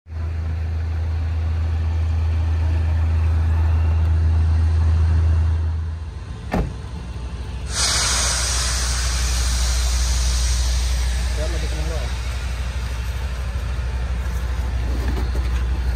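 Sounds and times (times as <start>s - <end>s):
engine idling: 0.1s - 15.9s
car door shutting: 6.5s - 6.9s
steady hiss: 7.7s - 14.6s.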